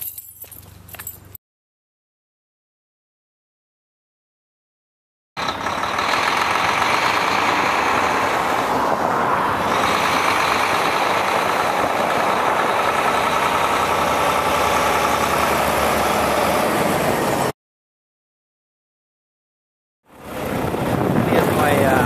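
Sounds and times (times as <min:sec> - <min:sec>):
diesel engine running: 0:05.4 - 0:17.5.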